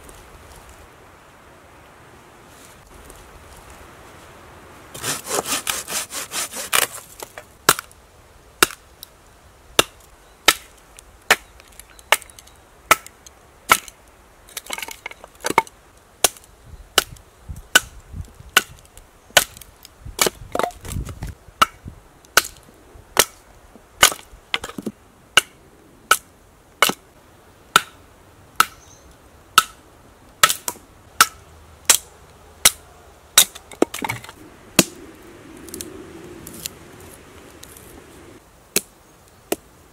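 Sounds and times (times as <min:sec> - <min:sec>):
knife sawing branch: 0:04.9 - 0:07.4.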